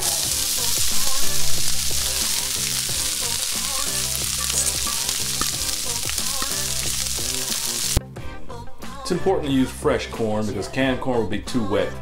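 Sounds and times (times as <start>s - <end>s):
corn frying in oil: 0.0s - 8.0s.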